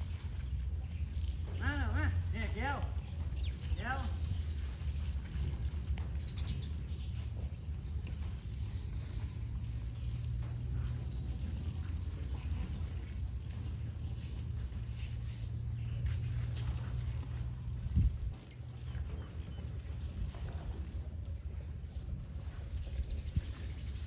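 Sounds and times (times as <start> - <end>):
steady low rumble: 0.0 - 24.0
bird chirping: 0.2 - 17.7.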